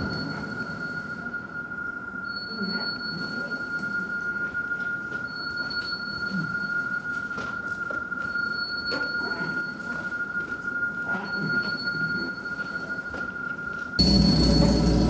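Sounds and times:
bell-like electronic tone: 0.0 - 15.0
steady high electronic tone: 12.2 - 15.0.

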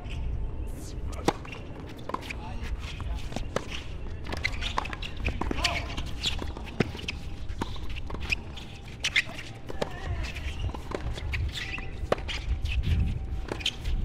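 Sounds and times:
tennis ball hitting rackets: 1.2 - 2.4
sneakers squeaking on court: 1.2 - 14.0.

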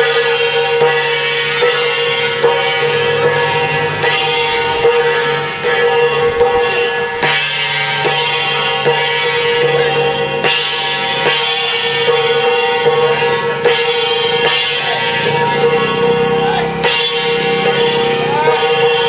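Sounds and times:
drum beat: 0.0 - 19.0
held music tones: 0.0 - 19.0.

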